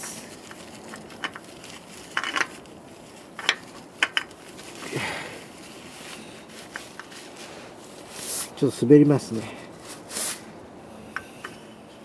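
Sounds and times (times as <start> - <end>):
rustle: 0.0 - 12.0
oil filter clicks and scrapes: 2.1 - 2.6.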